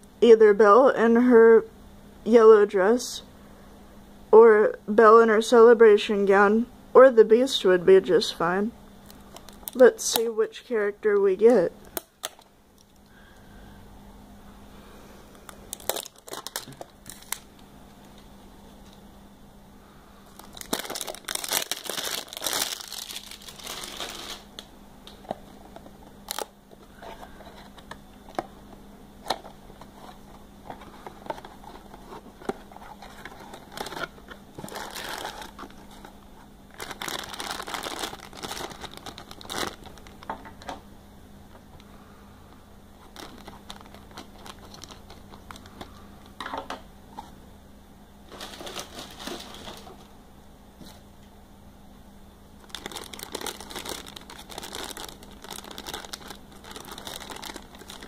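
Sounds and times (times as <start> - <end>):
foil bag crinkling and tearing: 9.1 - 10.2, 15.7 - 17.5, 20.3 - 24.6, 26.2 - 26.5, 30.9 - 36.1, 36.7 - 40.4, 43.0 - 45.9, 48.3 - 49.9, 52.6 - 58.0.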